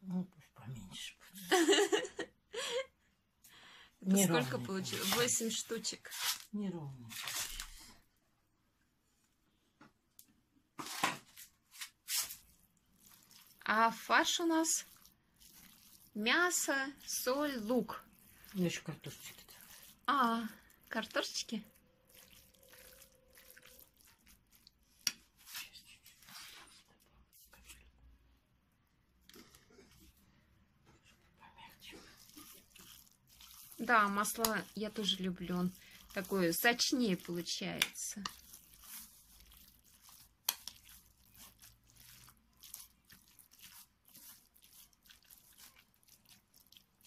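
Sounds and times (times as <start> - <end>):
spoon stirring wet minced meat: 4.1 - 6.5, 11.8 - 28.1, 29.1 - 47.0.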